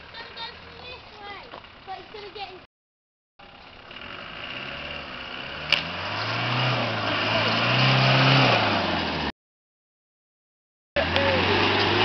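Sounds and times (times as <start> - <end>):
engine revving under load: 3.6 - 9.3, 11.0 - 12.0.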